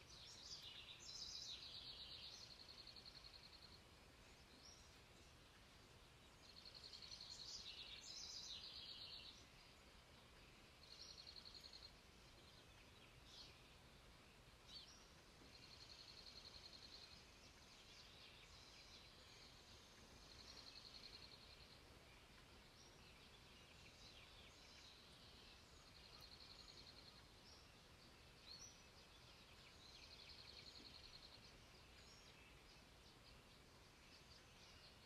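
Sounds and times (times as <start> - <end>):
songbird chirps: 0.0 - 35.0.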